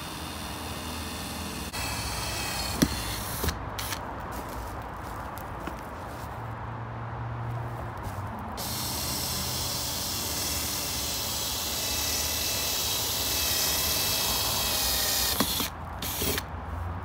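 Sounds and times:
cordless drill motor whining: 0.0 - 4.0, 8.6 - 16.5
drill bit hissing through plastic: 8.6 - 16.4.

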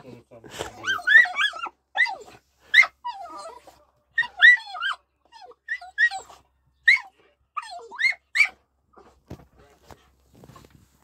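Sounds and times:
dog whimpering: 0.7 - 8.6.

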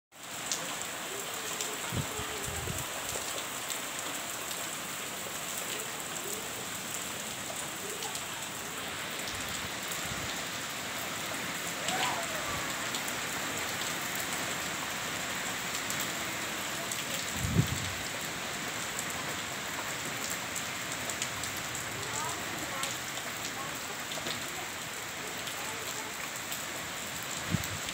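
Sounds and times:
heavy rain falling: 0.1 - 27.9.

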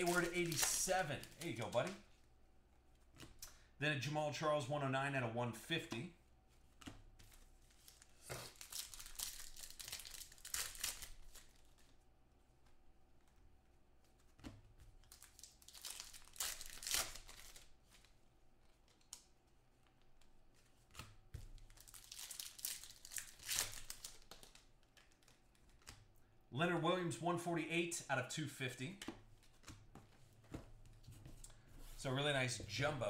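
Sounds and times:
card pack wrappers tearing and rustling: 0.0 - 2.0, 7.7 - 11.9, 15.0 - 17.7, 21.6 - 25.9.

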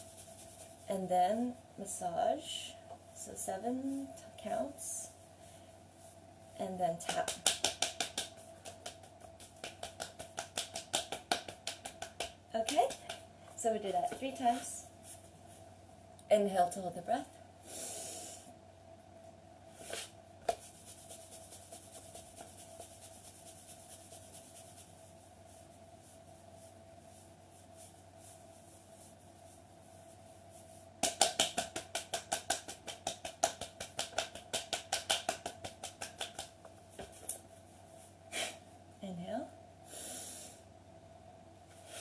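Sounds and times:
hands rubbing skin: 0.0 - 0.9, 6.9 - 13.3, 13.9 - 15.7, 19.8 - 38.1
faint steady hum: 0.0 - 42.0
hand slaps on skin: 7.0 - 13.2, 31.0 - 37.4.

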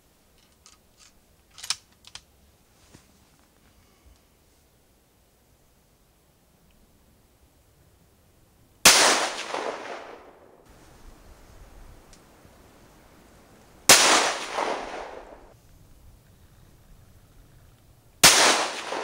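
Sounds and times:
rifle shots with echo: 8.8 - 10.6, 13.9 - 15.6, 18.2 - 19.0.

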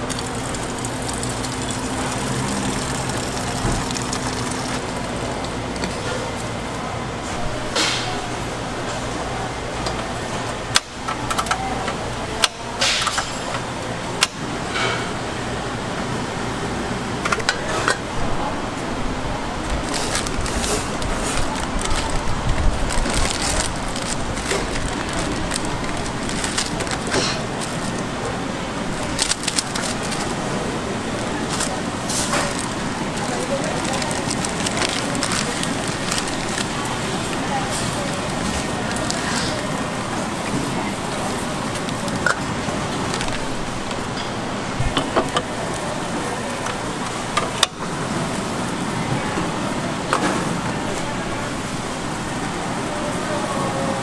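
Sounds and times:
water splashing into metal pot: 0.0 - 5.2
plastic packet crinkling and tearing: 0.0 - 5.5, 19.6 - 28.1, 28.8 - 43.7
low background hum: 0.0 - 54.0.

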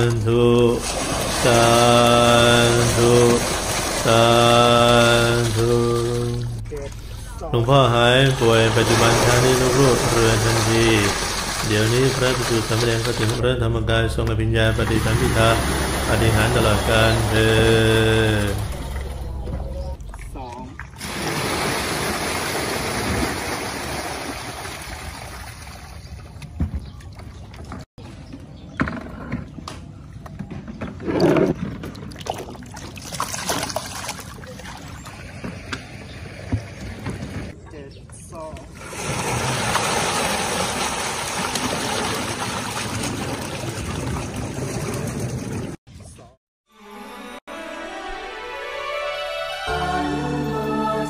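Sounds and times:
water pouring and splashing: 0.6 - 7.3, 8.2 - 13.4, 14.8 - 27.8, 31.6 - 35.7, 38.7 - 45.8.

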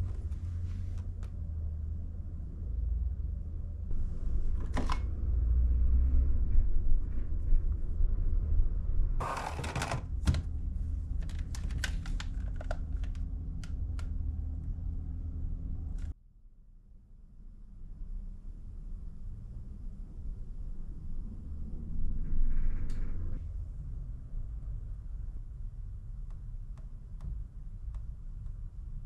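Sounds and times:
plastic appliances knocked and set down: 9.2 - 10.5.

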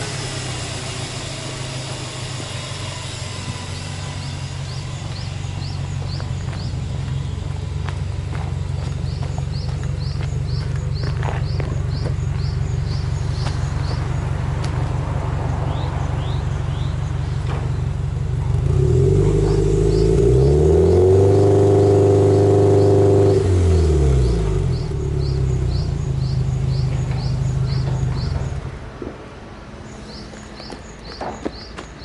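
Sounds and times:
car engine idling and revving: 0.0 - 32.0.

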